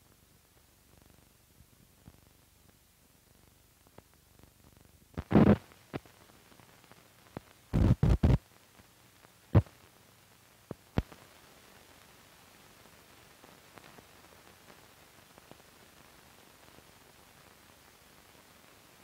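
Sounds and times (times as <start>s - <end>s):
low hiss: 0.0s - 19.0s.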